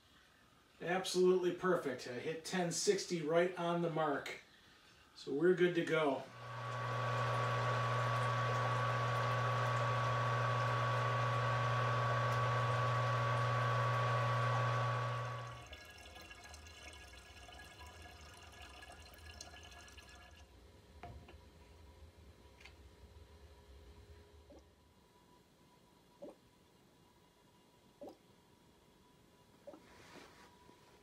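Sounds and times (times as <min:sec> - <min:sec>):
electric pump humming: 0:06.2 - 0:20.4.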